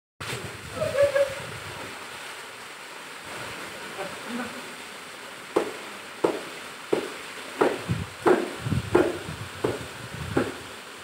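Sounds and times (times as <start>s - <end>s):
water spraying and splashing: 0.2s - 11.0s
person calling out: 0.7s - 1.5s
sharp knock: 5.6s - 9.8s.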